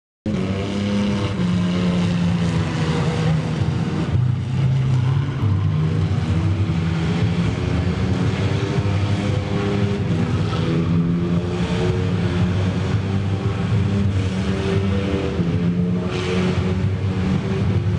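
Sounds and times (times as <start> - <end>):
car engine revving hard: 0.3 - 17.9.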